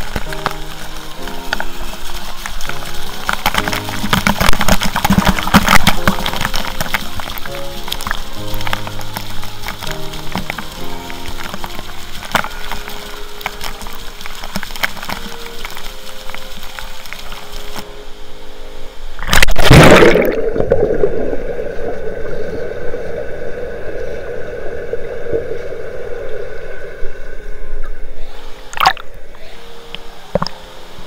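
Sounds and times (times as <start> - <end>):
muffled underwater rush and gurgle: 0.0 - 31.0
pool water splashing: 0.0 - 31.0.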